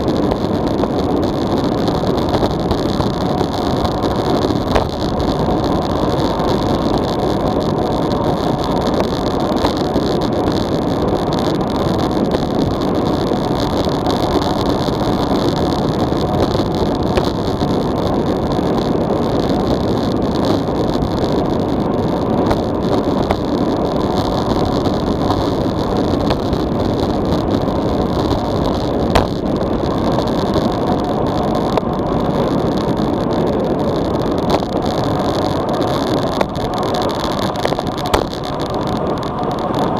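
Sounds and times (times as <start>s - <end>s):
tyre road noise: 0.0s - 39.9s
wind rushing over microphone: 0.0s - 39.9s.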